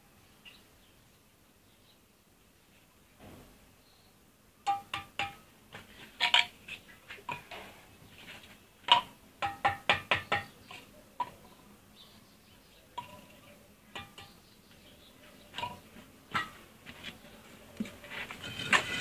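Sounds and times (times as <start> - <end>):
trowel tapping on bricks: 4.6 - 5.4, 8.9 - 10.6, 14.0 - 14.4.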